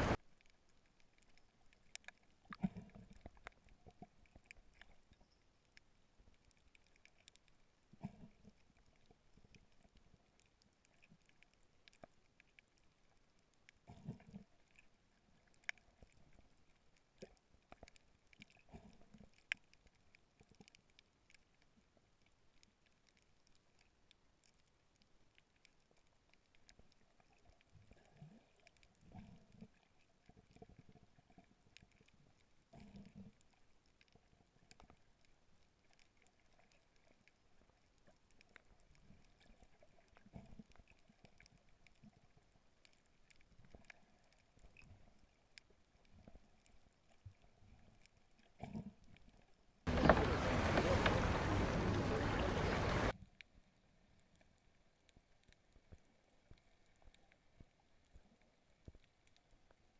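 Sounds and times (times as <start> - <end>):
faint underwater clicks: 0.0 - 59.9
soft underwater bumps: 49.9 - 53.1.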